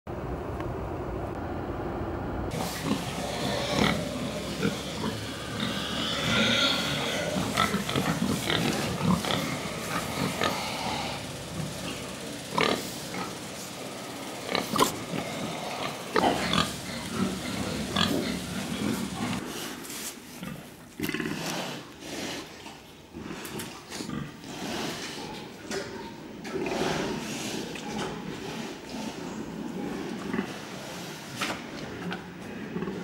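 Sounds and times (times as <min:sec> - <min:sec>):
low muffled rumble: 0:00.1 - 0:03.3
pigs vocalising: 0:02.5 - 0:19.8.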